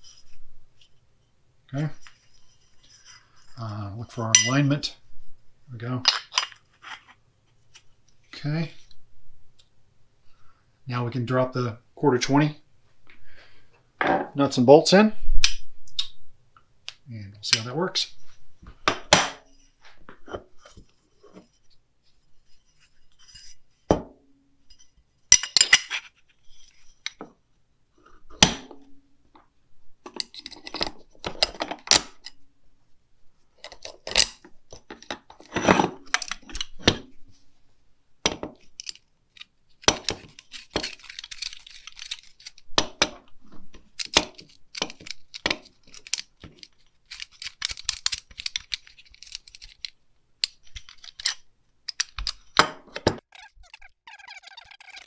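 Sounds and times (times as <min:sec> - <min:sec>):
metal screws and nuts clinking: 0:24.7 - 0:27.2.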